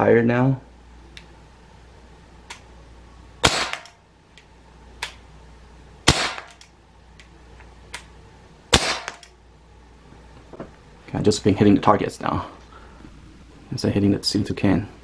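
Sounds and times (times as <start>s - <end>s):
pellet pistol shots: 3.4s - 4.0s, 6.0s - 6.6s, 8.7s - 9.3s.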